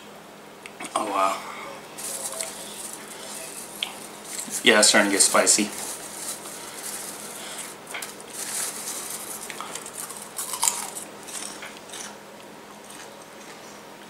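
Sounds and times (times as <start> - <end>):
hand rustling popcorn in bowl: 1.8 - 12.1
popcorn being chewed: 1.8 - 13.8.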